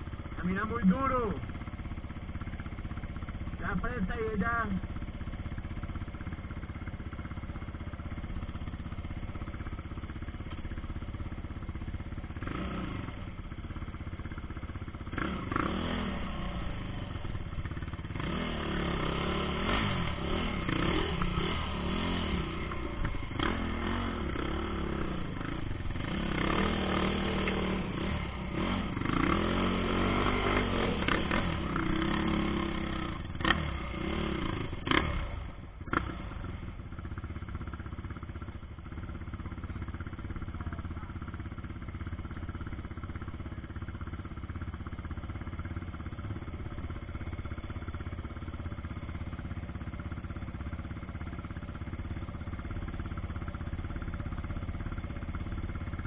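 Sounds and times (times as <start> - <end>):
quad bike engine revving: 11.9 - 38.2.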